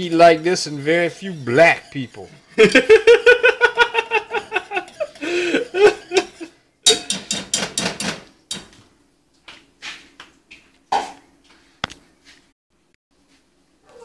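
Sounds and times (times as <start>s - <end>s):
man laughing: 2.5s - 6.5s.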